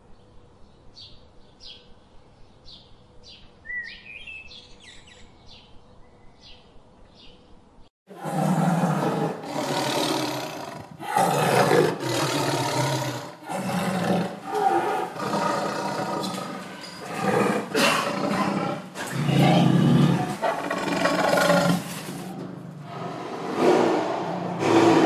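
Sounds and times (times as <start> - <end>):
big cat roaring and growling: 8.1 - 25.0.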